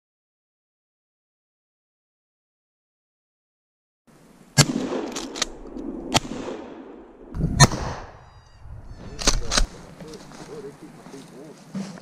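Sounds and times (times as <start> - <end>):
shotgun shots echoing: 4.6 - 8.2, 9.2 - 10.2.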